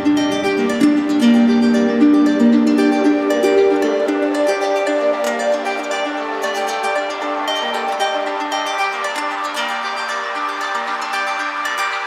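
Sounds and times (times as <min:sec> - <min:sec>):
plucked string melody: 0:00.0 - 0:12.0.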